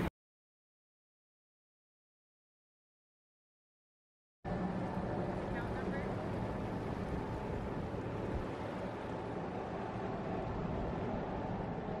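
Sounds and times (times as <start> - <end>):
boat engine rumbling: 4.5 - 12.0
wind noise: 4.6 - 12.0.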